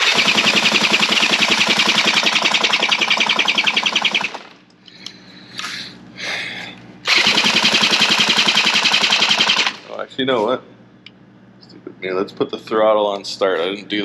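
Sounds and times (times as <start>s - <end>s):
drill spinning outboard motor: 0.0s - 4.4s, 7.1s - 9.8s.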